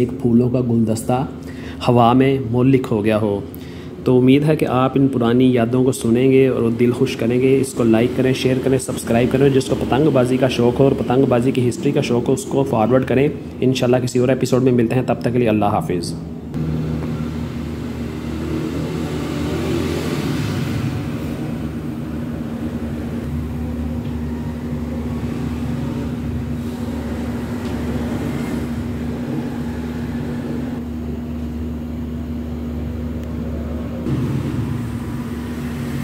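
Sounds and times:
engine rumbling and humming: 0:16.2 - 0:36.0.

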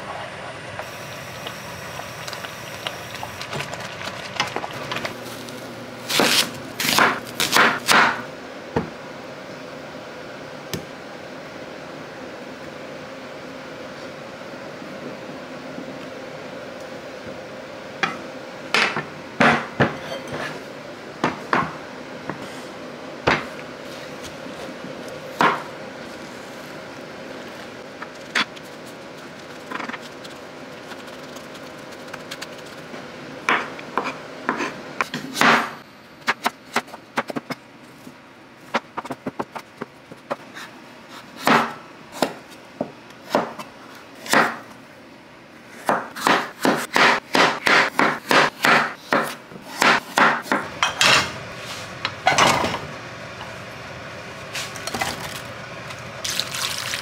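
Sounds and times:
steady hum: 0:00.0 - 0:57.0
utensils and dishes clinking: 0:19.9 - 0:20.6.

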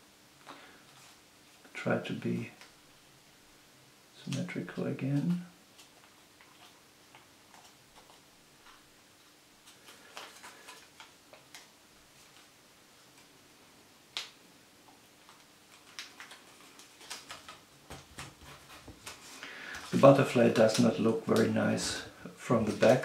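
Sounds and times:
banknote crinkling: 0:09.6 - 0:12.5, 0:15.2 - 0:21.6
paper snap: 0:14.1 - 0:14.4.

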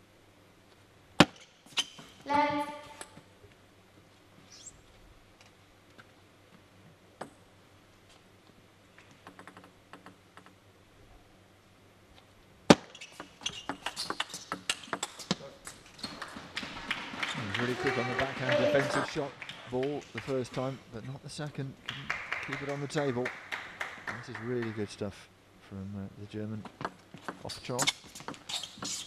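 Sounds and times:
person shouting: 0:17.6 - 0:19.1.

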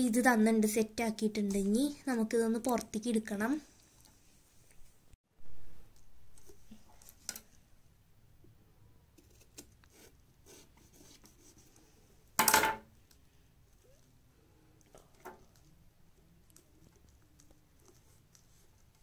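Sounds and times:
knife scraping pumpkin: 0:09.2 - 0:11.7.

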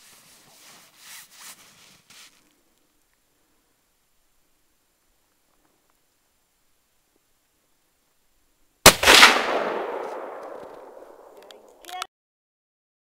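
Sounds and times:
gunshot with echo: 0:08.9 - 0:11.4.

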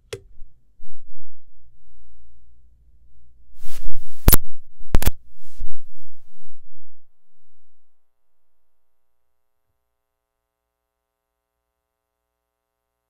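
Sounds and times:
low hum: 0:00.1 - 0:09.2
microphone power-down pops: 0:03.6 - 0:06.3.

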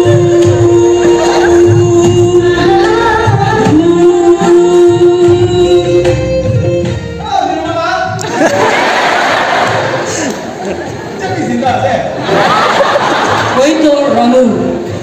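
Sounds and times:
music with a low beat: 0:00.0 - 0:07.2
person singing into a microphone: 0:00.0 - 0:07.2.

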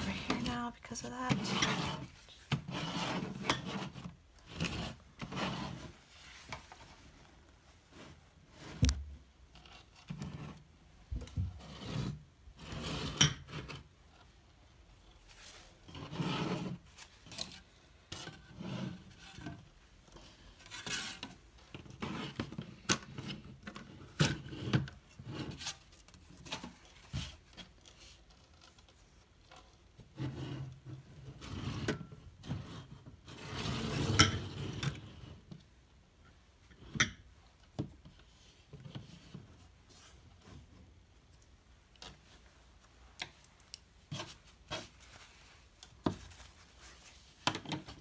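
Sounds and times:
palette scraping across table: 0:01.2 - 0:06.5, 0:11.6 - 0:13.8, 0:15.9 - 0:16.9, 0:18.5 - 0:19.3, 0:31.4 - 0:35.3.

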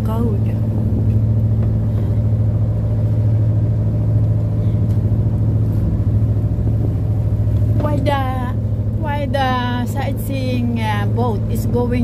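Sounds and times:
motor boat engine droning: 0:00.0 - 0:12.0.

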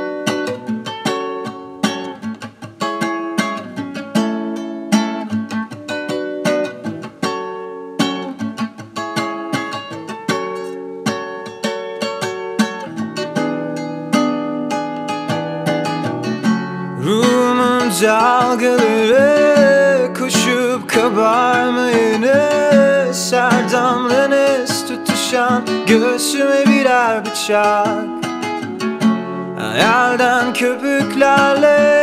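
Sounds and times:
plucked strings playing: 0:03.4 - 0:32.0
person singing: 0:17.0 - 0:32.0.

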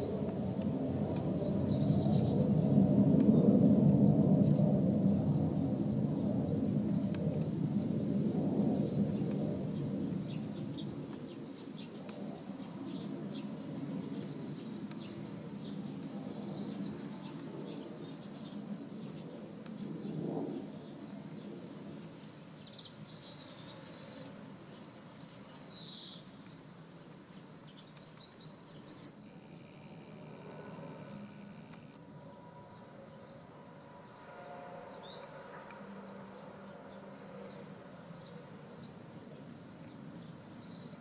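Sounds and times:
bird chirps: 0:22.6 - 0:29.3.

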